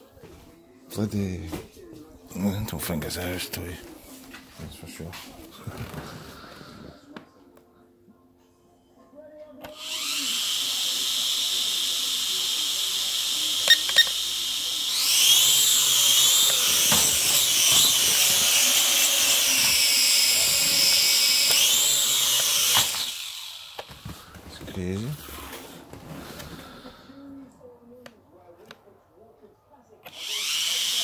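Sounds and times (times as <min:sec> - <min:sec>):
toy drone motors whining: 0:09.6 - 0:24.1, 0:30.1 - 0:31.0.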